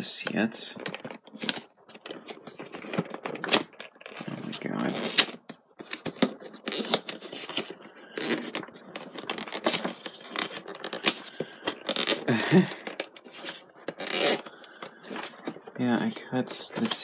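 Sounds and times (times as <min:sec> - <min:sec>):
cardboard scratching and tearing: 0:01.3 - 0:12.3, 0:13.2 - 0:15.6
packing tape being cut: 0:06.4 - 0:08.6, 0:09.3 - 0:12.3, 0:13.2 - 0:15.2.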